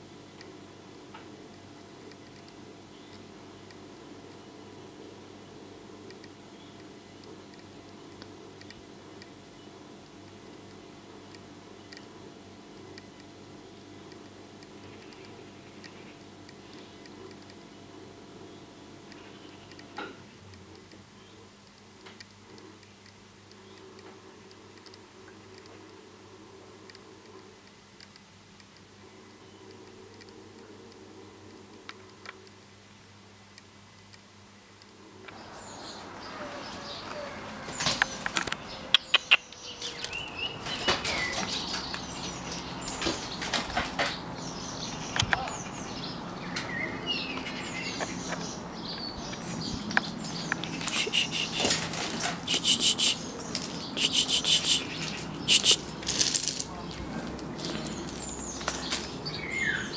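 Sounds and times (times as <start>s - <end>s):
faint low hum: 0.0s - 59.9s
birds chirping: 1.5s - 21.7s, 33.2s - 59.9s
wings flapping: 50.7s - 52.6s.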